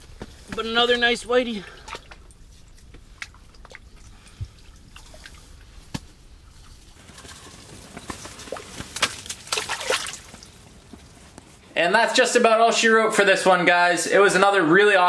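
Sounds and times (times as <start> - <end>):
water splashing: 1.5 - 10.7.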